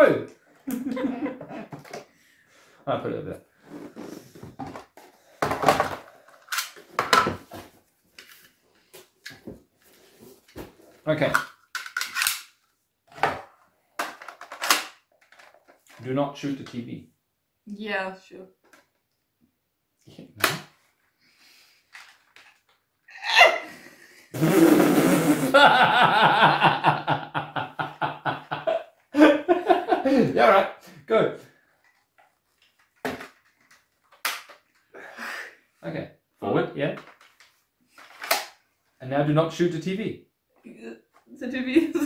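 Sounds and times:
people laughing: 0.7 - 1.7, 25.5 - 30.4
plastic parts and boxes clattering: 4.4 - 8.4, 10.4 - 12.5, 13.1 - 16.1, 21.9 - 22.8, 31.7 - 34.9, 37.0 - 38.6.

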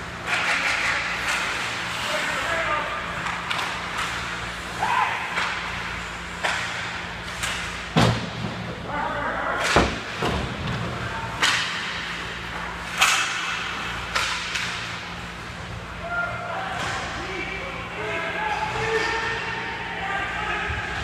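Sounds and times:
low arena hum: 0.0 - 21.0
hockey sticks and puck knocking: 0.2 - 1.8, 3.2 - 5.8, 6.4 - 8.7, 11.4 - 15.1.

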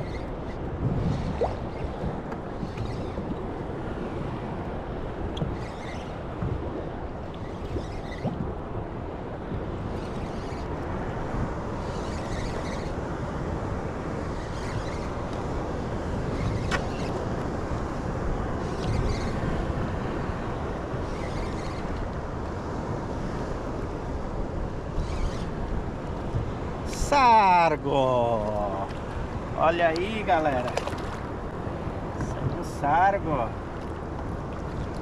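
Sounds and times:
wind buffeting microphone: 0.0 - 27.2, 27.8 - 35.0.

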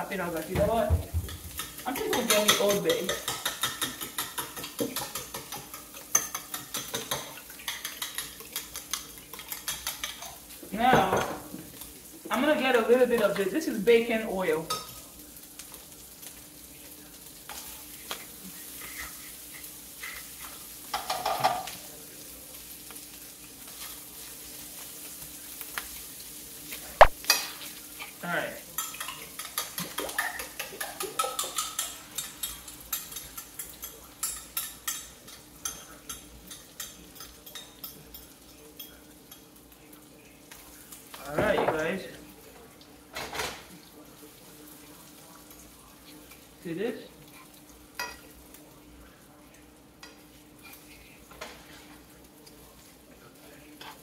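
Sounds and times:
food sizzling in a pan: 0.0 - 54.0.

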